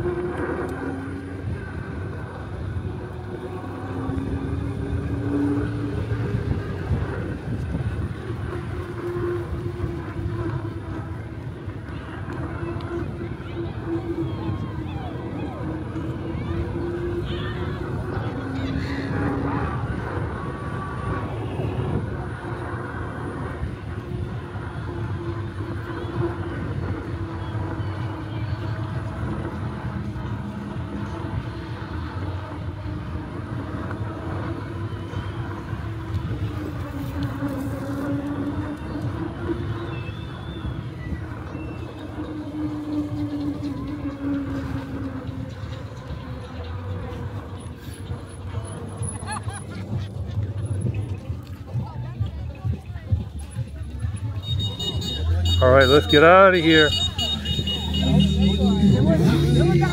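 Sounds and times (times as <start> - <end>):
wind rush: 0.0 - 43.3
electric bike rolling hum: 0.0 - 59.9.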